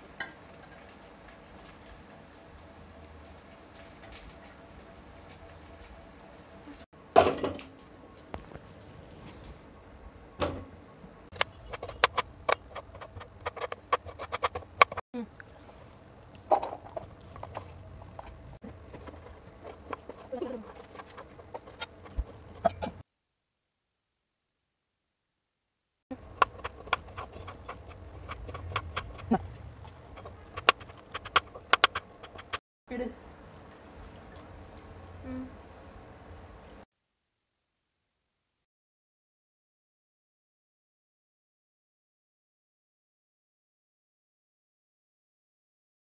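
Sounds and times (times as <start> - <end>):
low background hum: 0.0 - 23.0, 26.1 - 36.8.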